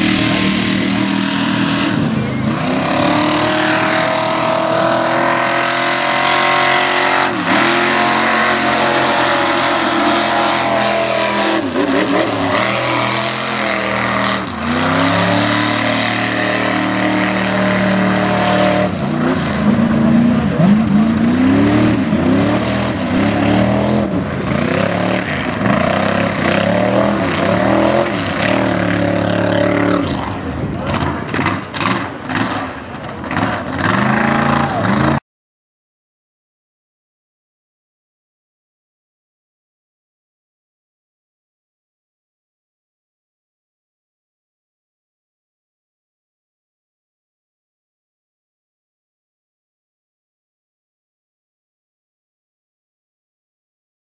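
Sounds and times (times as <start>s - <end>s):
car engine revving in mud: 0.0s - 35.2s.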